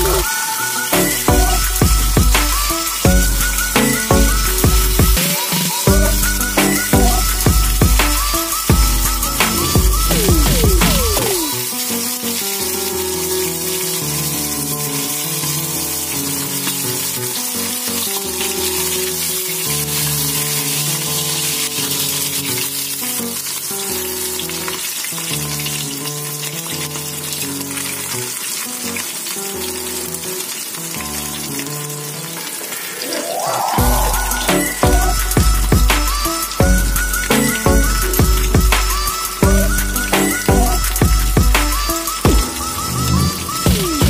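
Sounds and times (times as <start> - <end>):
background music with bass: 0.0 - 5.3, 5.9 - 11.5, 33.8 - 44.0
fish sizzling in oil: 0.0 - 44.0.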